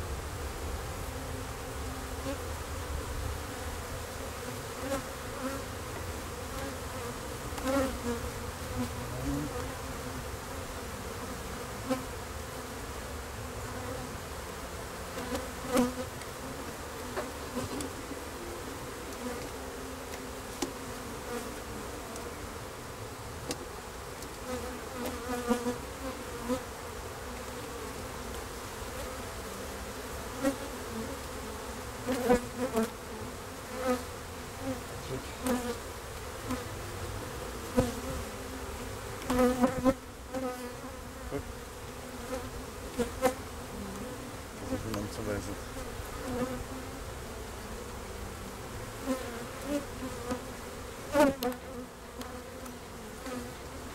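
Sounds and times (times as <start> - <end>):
bees buzzing: 0.0 - 53.9.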